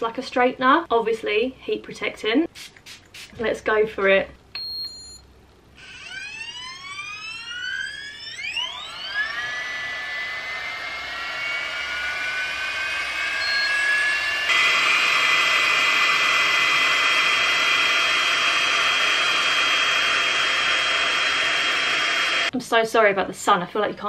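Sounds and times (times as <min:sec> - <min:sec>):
hot-air styler fan whining: 0:05.8 - 0:22.5.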